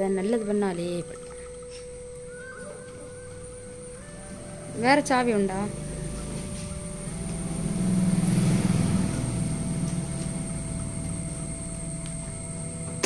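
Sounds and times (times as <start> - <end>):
vehicle engine rumble: 3.4 - 13.0.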